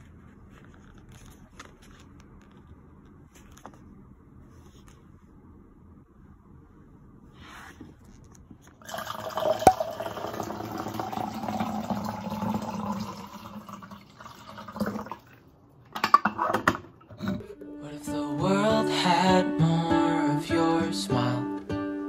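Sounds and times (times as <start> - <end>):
ice clinking: 8.8 - 15.2
water pouring over ice: 8.8 - 15.4.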